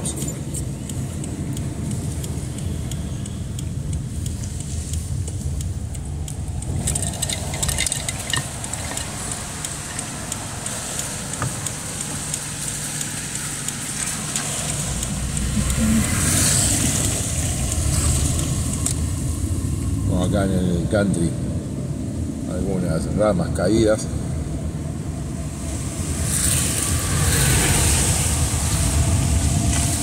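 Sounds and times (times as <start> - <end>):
light ticks: 0.0 - 19.8
engine and road rumble: 0.0 - 30.0
tyre hiss on wet road: 8.6 - 19.4, 25.5 - 30.0.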